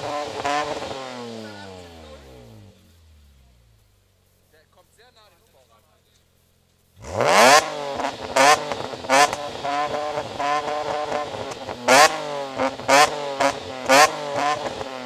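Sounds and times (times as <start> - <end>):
car engine revving: 0.0 - 5.0, 6.2 - 15.0.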